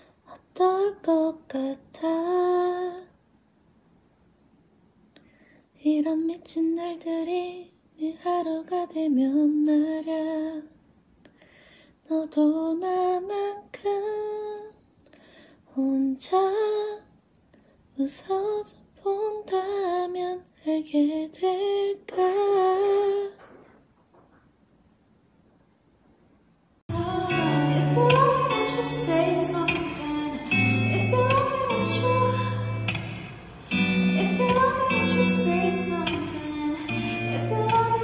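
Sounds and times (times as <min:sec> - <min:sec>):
woman singing unaccompanied: 0:00.3 - 0:03.2, 0:05.8 - 0:10.8, 0:12.1 - 0:14.8, 0:15.7 - 0:17.1, 0:18.0 - 0:23.4, 0:26.9 - 0:33.0, 0:33.6 - 0:38.0.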